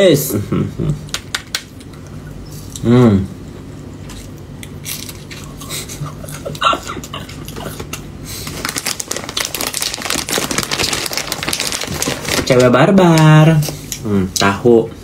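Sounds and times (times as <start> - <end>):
plastic bag crinkling: 8.4 - 13.6.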